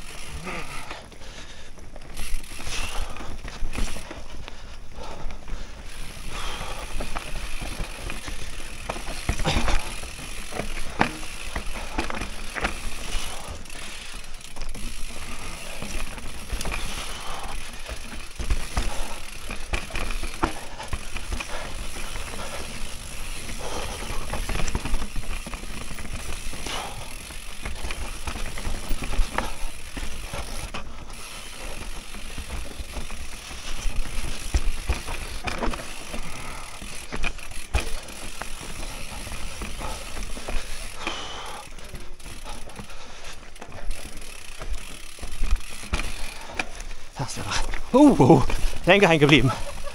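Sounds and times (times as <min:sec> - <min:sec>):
bike chain and frame rattling: 0:00.0 - 0:49.9
bike tyres rolling over dirt: 0:00.0 - 0:49.9
bike knocking over bumps: 0:06.3 - 0:13.5, 0:14.5 - 0:30.9, 0:31.7 - 0:41.1, 0:43.6 - 0:46.8.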